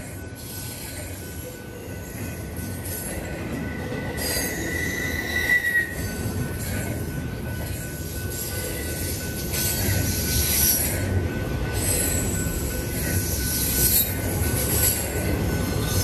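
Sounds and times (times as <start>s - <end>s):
train cars rumbling on rails: 0.0s - 16.0s
metallic wheel squeal: 4.2s - 6.1s.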